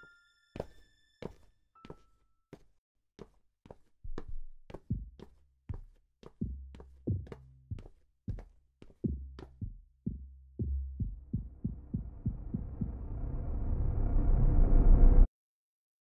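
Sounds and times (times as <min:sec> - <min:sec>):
heartbeat-like thumps: 0:04.9 - 0:05.2, 0:06.4 - 0:14.1
swell of noise: 0:11.7 - 0:15.3.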